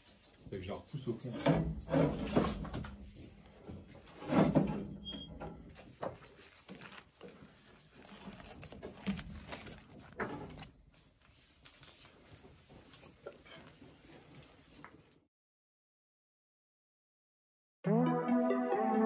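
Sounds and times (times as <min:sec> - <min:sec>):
embers crackling: 0:06.6 - 0:10.9.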